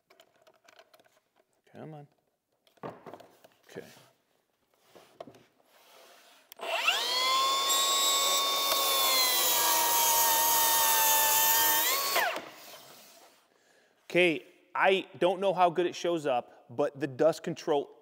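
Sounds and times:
circular saw cutting plywood: 5.9s - 13.3s
saw motor winding down: 6.6s - 12.9s.

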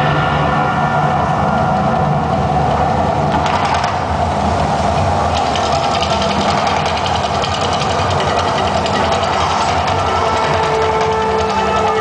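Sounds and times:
fast rattling ticking: 3.2s - 12.0s.

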